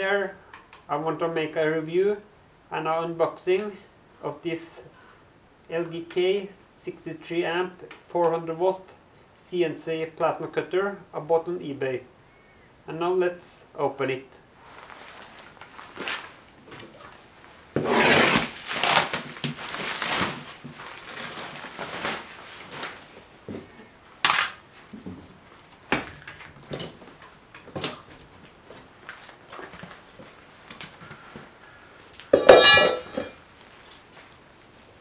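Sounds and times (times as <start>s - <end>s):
plastic wrap tearing: 17.8s - 23.1s
metallic clang: 32.4s - 33.4s.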